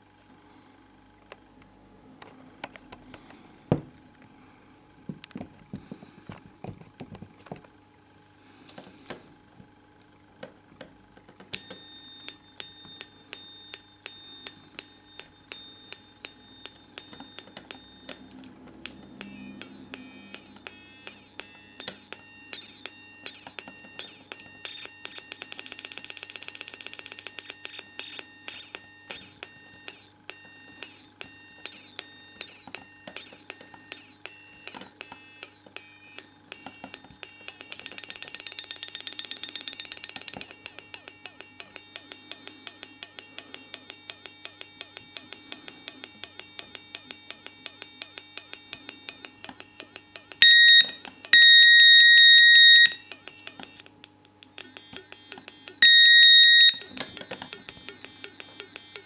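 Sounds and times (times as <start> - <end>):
shrill electronic beeps: 11.6 - 18.2, 19.2 - 53.8, 54.6 - 59.0
falling electronic chirps: 19.2 - 53.8.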